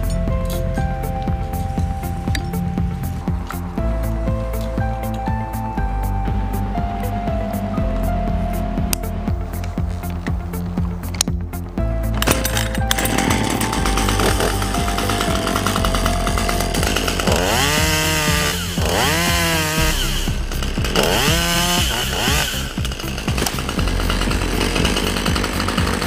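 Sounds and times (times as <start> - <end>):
background music: 0.0 - 26.0
chainsaw revving: 12.2 - 26.0.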